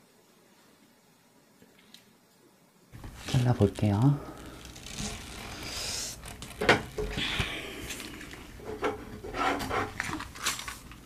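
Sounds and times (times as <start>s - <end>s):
gloved hands rubbing and scraping: 3.0s - 11.0s.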